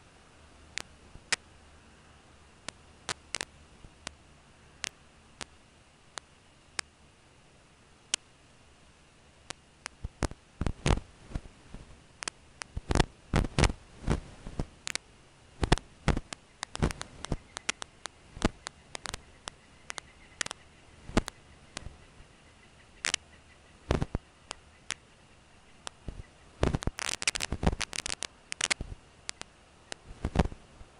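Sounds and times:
faint high whine: 0.0s - 30.9s
sharp clicks and crackles: 0.7s - 1.5s, 2.6s - 4.2s, 4.8s - 6.9s, 8.1s - 8.3s, 9.4s - 22.0s, 22.9s - 23.3s, 23.9s - 25.1s, 25.8s - 30.9s.

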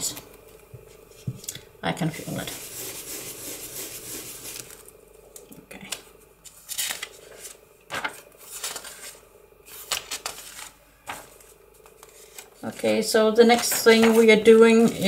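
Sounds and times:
ink tool brushing over paper: 2.2s - 4.9s
paper pages rustling: 2.8s - 5.0s, 6.4s - 15.0s.

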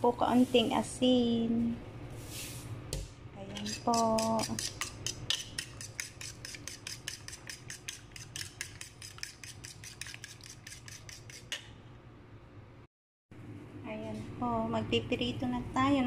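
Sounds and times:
fork beating eggs on a plate: 3.5s - 11.6s.

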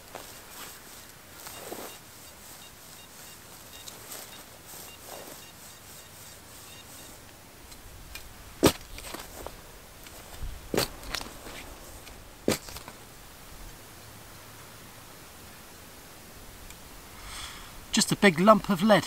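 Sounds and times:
faint rustling: 0.0s - 13.8s.

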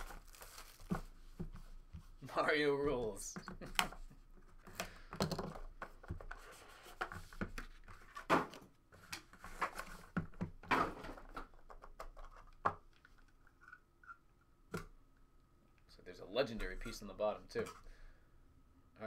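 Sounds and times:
cardboard rustling: 0.0s - 2.2s.

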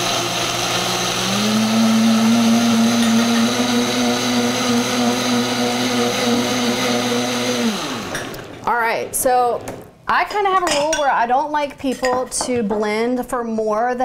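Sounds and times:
blender motor running: 0.0s - 8.8s.

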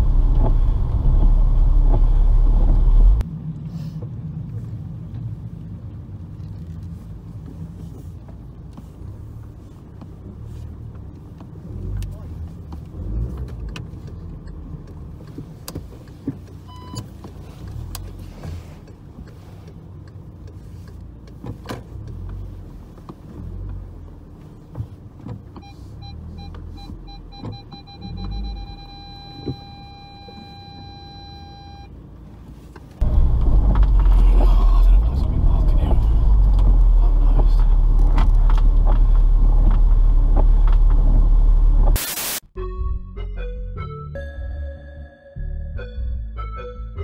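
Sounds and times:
car interior low rumble: 0.0s - 42.0s
parking sensor beeps: 16.6s - 17.1s, 25.6s - 31.9s.

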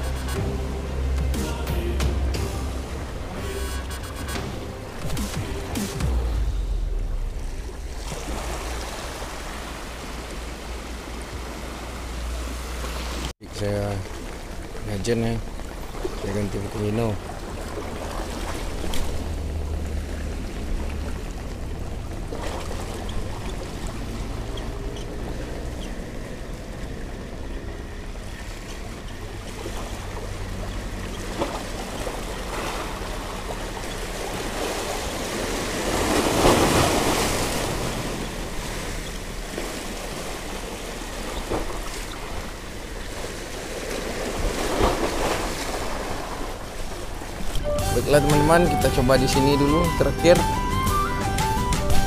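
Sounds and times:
waves splashing against rocks: 6.8s - 50.3s.

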